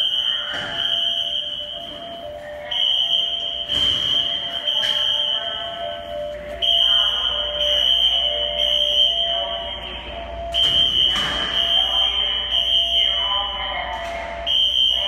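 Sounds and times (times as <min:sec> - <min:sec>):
high-pitched alarm tone: 0:00.0 - 0:15.0.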